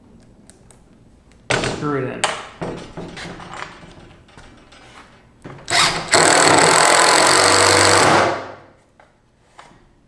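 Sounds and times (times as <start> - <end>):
impact driver driving a screw: 5.7 - 8.5.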